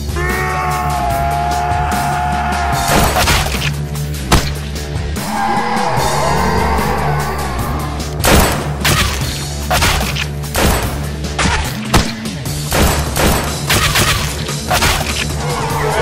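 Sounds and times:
background music with bass: 0:00.0 - 0:16.0
pistol gunshots: 0:08.2 - 0:15.3.

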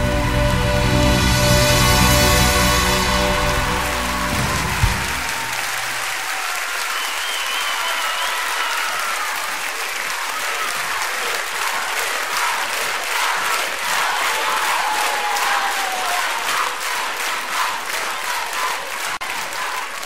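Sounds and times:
band closing chord: 0:00.0 - 0:05.7
audience applauding: 0:00.0 - 0:20.0.

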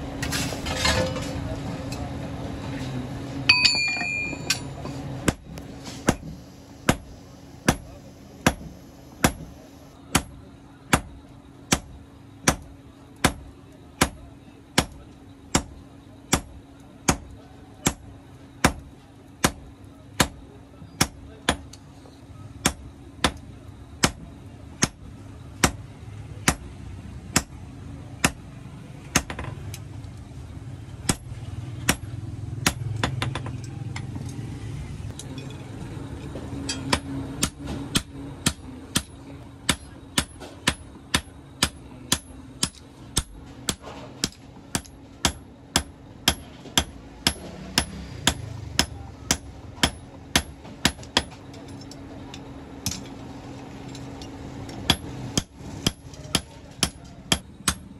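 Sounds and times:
hammer striking anvil: 0:03.5 - 0:05.4, 0:06.0 - 0:11.1, 0:36.6 - 0:51.4, 0:54.2 - 0:57.9.

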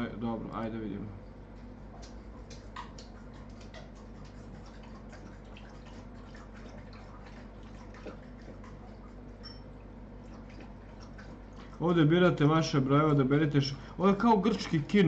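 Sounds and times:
low electrical hum: 0:00.0 - 0:15.0
faint ticking and clicking: 0:01.5 - 0:05.0.

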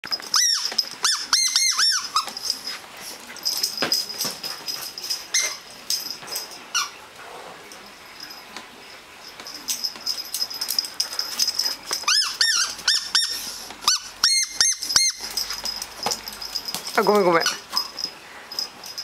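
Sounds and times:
squeaky dog toy squeaks: 0:00.3 - 0:02.5, 0:05.3 - 0:05.7, 0:06.7 - 0:07.0, 0:12.0 - 0:15.5.

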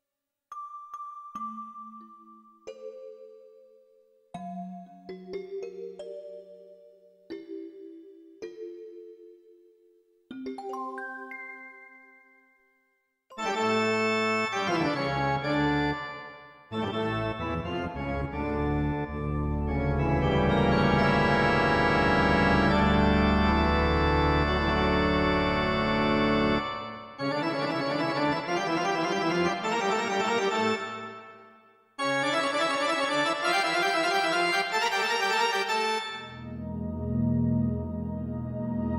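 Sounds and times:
synthesizer playing chords: 0:16.9 - 0:31.2, 0:32.0 - 0:38.9
deep synth bass: 0:36.4 - 0:38.9.

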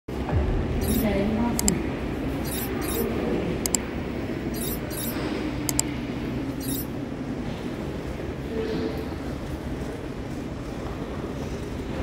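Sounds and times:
high-pitched rattles: 0:00.8 - 0:01.1, 0:02.4 - 0:03.1, 0:04.6 - 0:05.8, 0:06.6 - 0:06.9.

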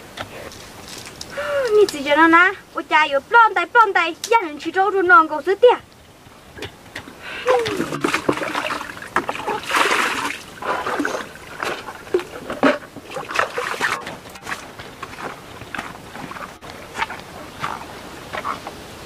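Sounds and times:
water splashing and sloshing: 0:04.3 - 0:19.0.

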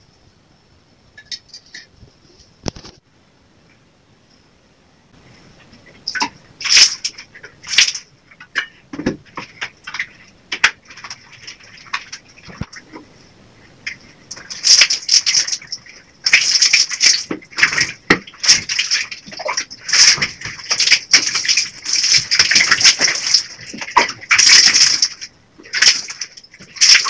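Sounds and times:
water splashing by hand: 0:13.9 - 0:27.0.

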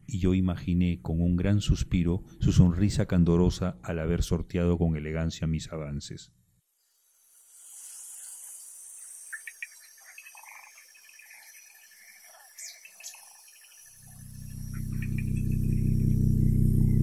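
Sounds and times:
insect trilling: 0:06.8 - 0:17.0
low droning music chord: 0:14.2 - 0:17.0.

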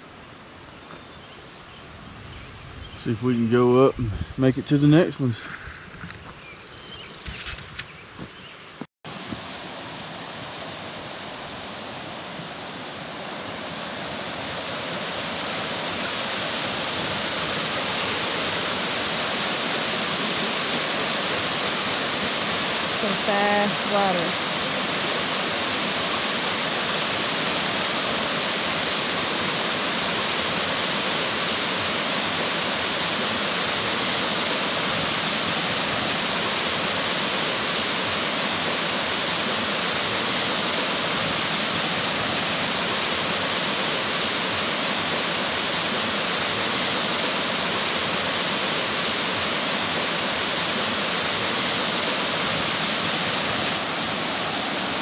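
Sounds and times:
creek rushing over rocks: 0:09.1 - 0:55.0.

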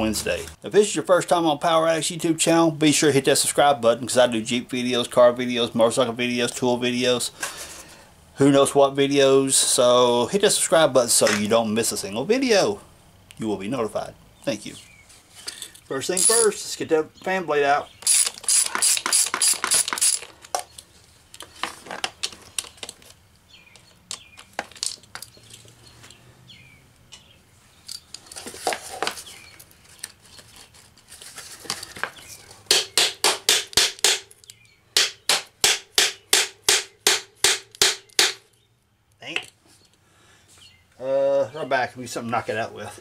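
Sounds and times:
ratchet wrench clicking: 0:18.0 - 0:20.3.

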